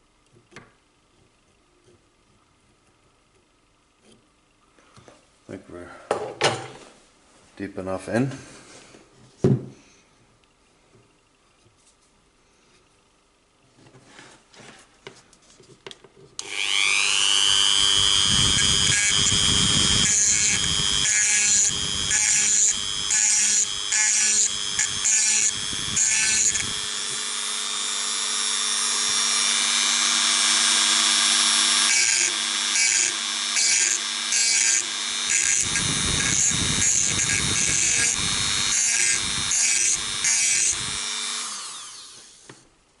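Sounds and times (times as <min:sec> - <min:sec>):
rotary tool grinding metal: 0:16.4 - 0:42.5.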